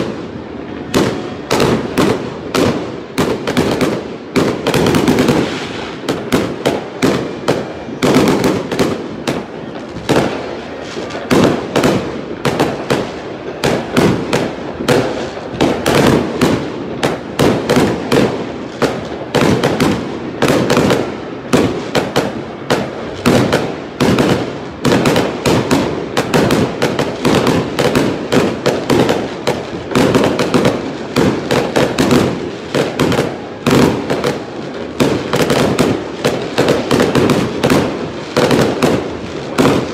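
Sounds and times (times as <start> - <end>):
fireworks banging: 0.0 - 39.9.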